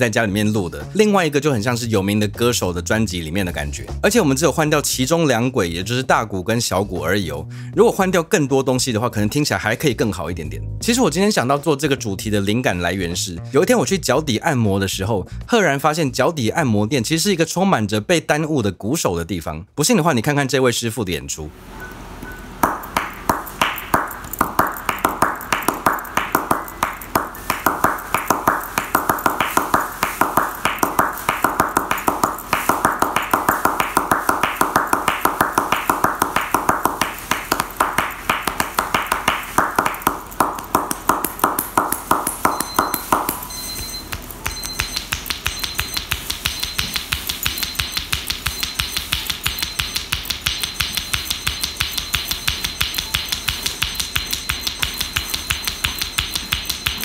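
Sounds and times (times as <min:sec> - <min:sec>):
hands slapping and chopping on legs: 0:22.6 - 0:57.0.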